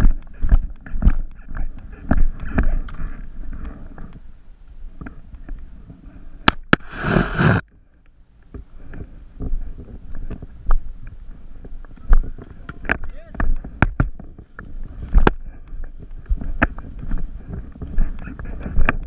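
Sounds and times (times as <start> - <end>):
footsteps: 6.8 - 7.6, 8.5 - 19.0
short rush of noise: 6.8 - 7.6.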